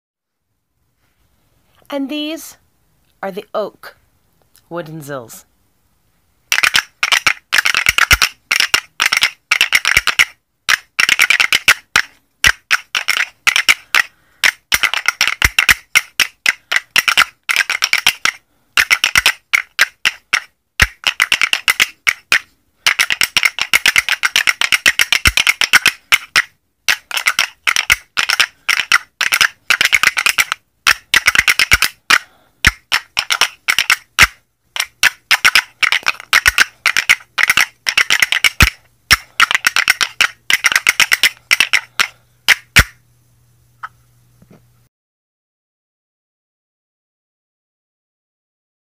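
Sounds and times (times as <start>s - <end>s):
wooden finger cymbals clicking: 6.5s - 43.0s.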